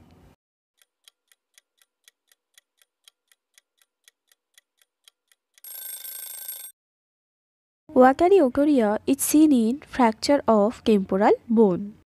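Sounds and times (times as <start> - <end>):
timer ticking: 0.8 - 6.0
buzzing timer end sound: 5.6 - 6.7.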